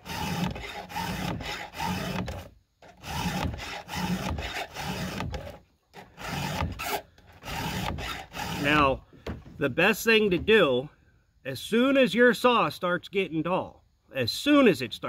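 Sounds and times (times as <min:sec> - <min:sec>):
file rasping on chainsaw teeth: 0:00.0 - 0:08.8.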